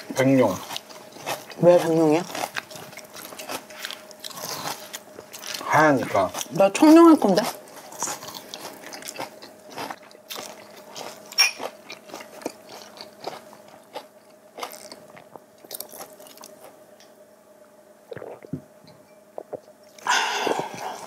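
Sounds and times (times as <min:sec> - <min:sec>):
chewing mouth noises: 0:07.4 - 0:16.8, 0:18.1 - 0:18.6
gulping: 0:18.1 - 0:18.6.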